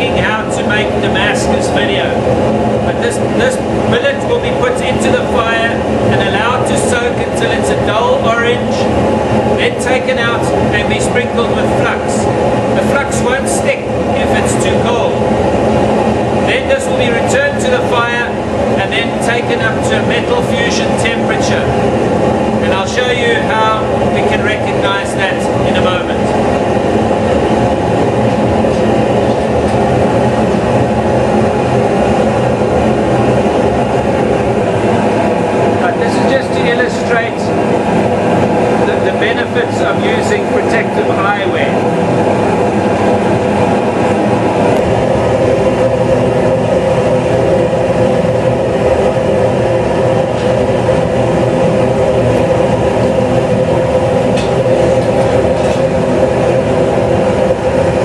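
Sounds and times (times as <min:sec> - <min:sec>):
constant hum: 0:00.0 - 0:58.0
gas forge burner rushing: 0:00.0 - 0:58.0.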